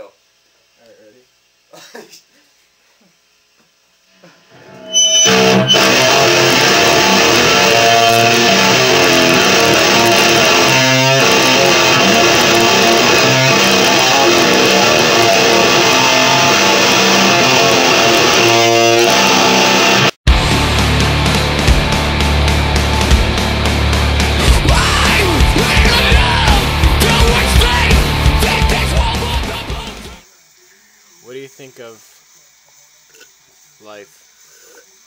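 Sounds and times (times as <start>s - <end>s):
electric guitar strummed hard: 4.6s - 30.2s
drums and cymbals: 20.3s - 30.3s.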